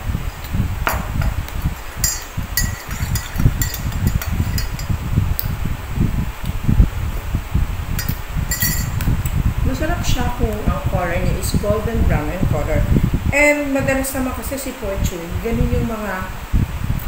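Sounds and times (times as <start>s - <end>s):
dull low knocks: 0.0s - 5.2s
spoon clinking against mug: 1.6s - 5.0s, 8.0s - 9.0s.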